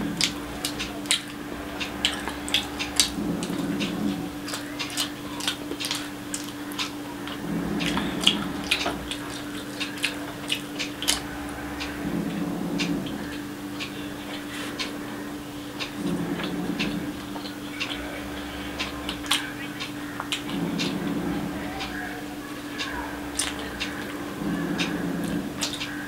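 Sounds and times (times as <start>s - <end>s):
fingers mixing rice on plate: 0.0s - 12.1s
woman chewing wetly: 0.0s - 13.4s, 18.8s - 21.9s, 22.8s - 26.0s
low hum: 0.0s - 26.0s.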